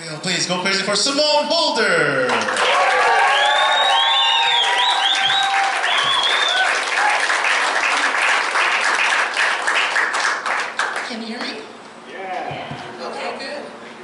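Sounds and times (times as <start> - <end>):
audience clapping and cheering: 2.2 - 11.2
high whoops: 2.6 - 7.4.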